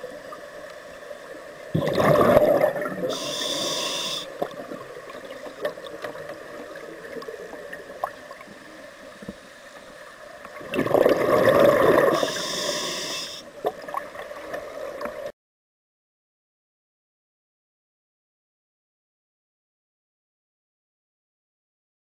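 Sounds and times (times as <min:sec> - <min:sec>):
exhaled bubbles underwater: 0:01.6 - 0:08.6, 0:10.5 - 0:12.8
regulator inhalation hiss: 0:03.0 - 0:04.4, 0:12.0 - 0:13.5.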